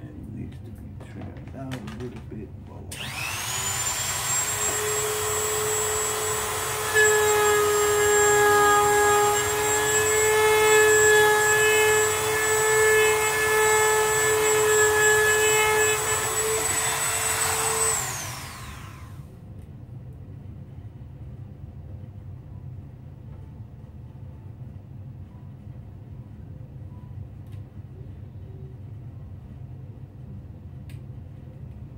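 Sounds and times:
rotary tool high whine: 2.9 - 19.3.

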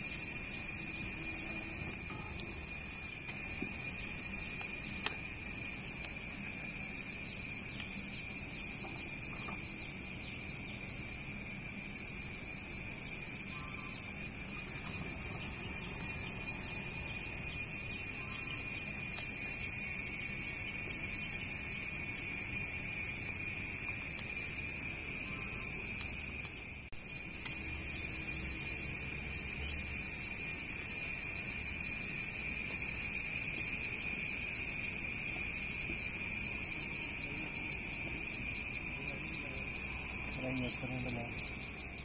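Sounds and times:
distant jet engines whining: 0.0 - 26.6.

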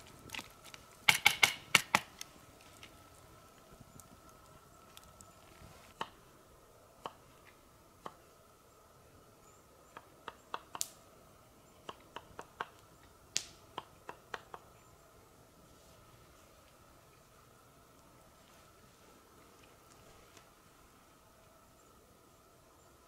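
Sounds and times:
campfire crackling and popping: 0.0 - 6.2, 10.1 - 11.1, 11.8 - 14.7.

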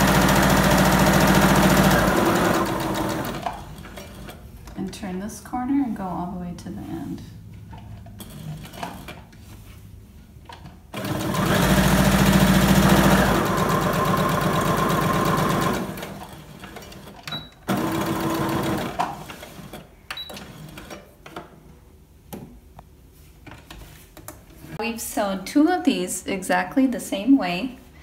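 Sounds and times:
sewing machine stitching: 0.0 - 4.4, 10.9 - 21.1.

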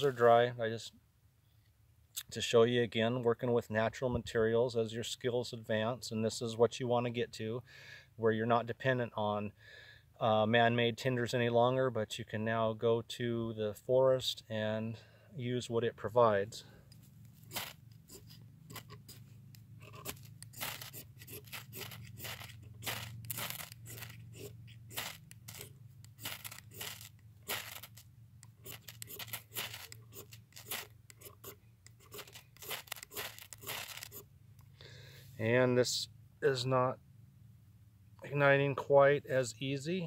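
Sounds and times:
ferro rod scraped with striker: 17.3 - 34.3.

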